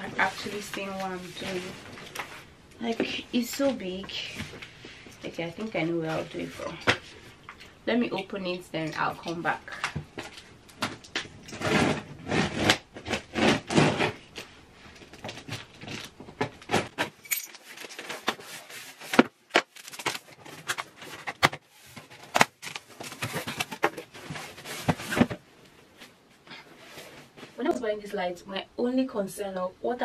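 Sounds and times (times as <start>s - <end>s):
packaging rustling: 10.1s - 25.4s.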